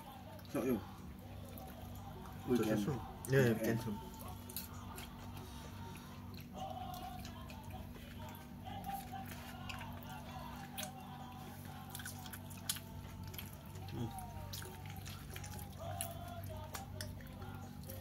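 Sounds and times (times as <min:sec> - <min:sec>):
faint background music: 0:00.0 - 0:18.0
person chewing a burger: 0:00.0 - 0:18.0
steady low hum: 0:00.0 - 0:18.0.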